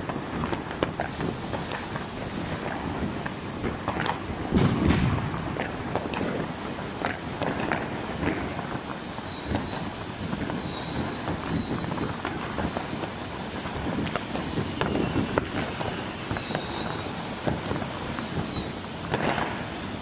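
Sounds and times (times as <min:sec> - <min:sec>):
firework hissing and crackling: 0:00.0 - 0:20.0
faint falling whistles: 0:08.8 - 0:18.9.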